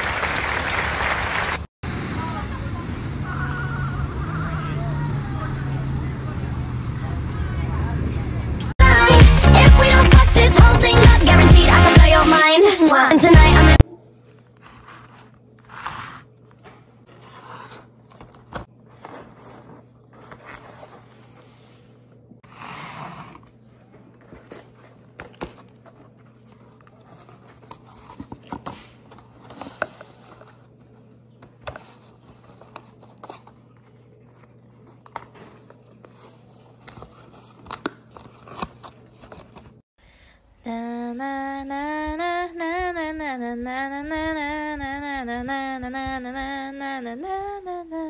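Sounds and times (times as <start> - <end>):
paper packaging rustling: 14.3 - 22.0, 23.3 - 39.8
faint steady hum: 40.0 - 48.0.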